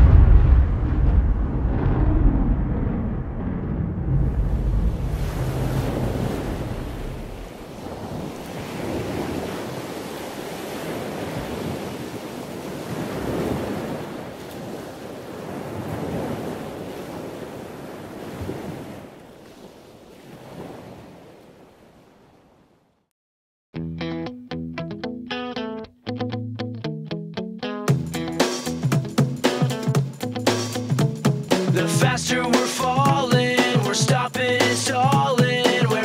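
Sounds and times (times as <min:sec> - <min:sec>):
deep rumble: 0:00.0 - 0:07.5
ocean surf washing in and out: 0:00.0 - 0:22.7, 0:30.5 - 0:36.0.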